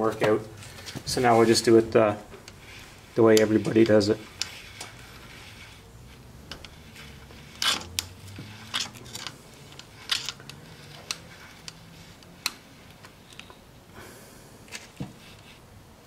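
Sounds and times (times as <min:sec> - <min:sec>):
screwdriver clicking and scraping metal: 0:02.4 - 0:13.6.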